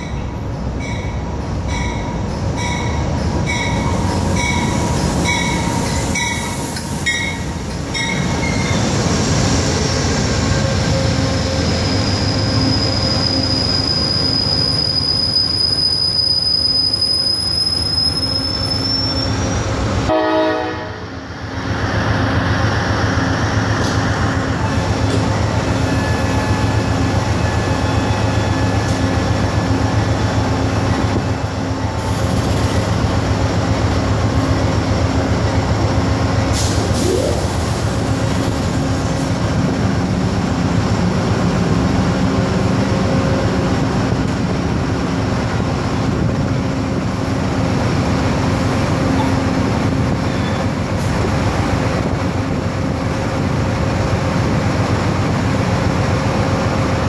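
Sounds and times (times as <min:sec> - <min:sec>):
train wheels rumbling on rail: 0:00.0 - 0:57.0
rising squeal: 0:02.9 - 0:19.8.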